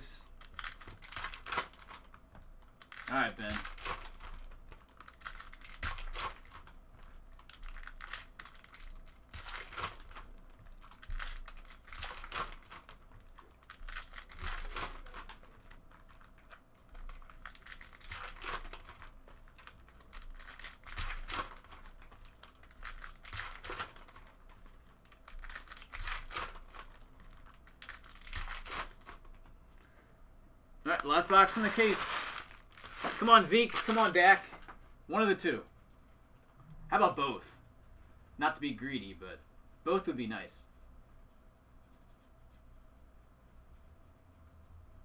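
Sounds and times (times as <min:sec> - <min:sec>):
foil wrappers tearing and crinkling: 0:00.4 - 0:29.3, 0:30.9 - 0:34.5.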